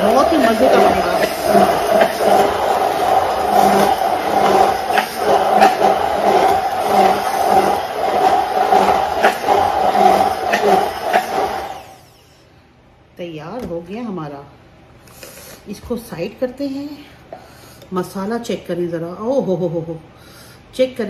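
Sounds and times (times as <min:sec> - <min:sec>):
stick blender running: 0:00.0 - 0:12.3.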